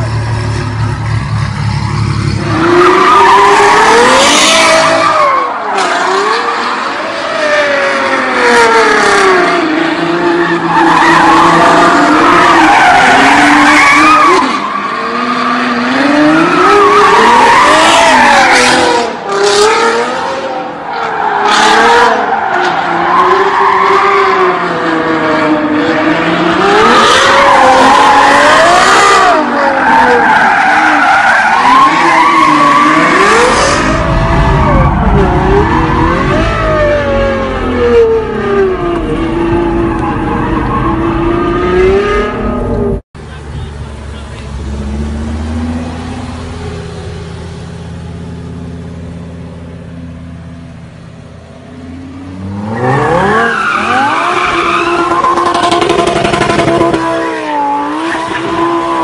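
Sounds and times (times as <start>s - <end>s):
tyres squealing and skidding: 0.0s - 43.0s, 51.8s - 59.0s
car engine revving: 0.0s - 59.0s.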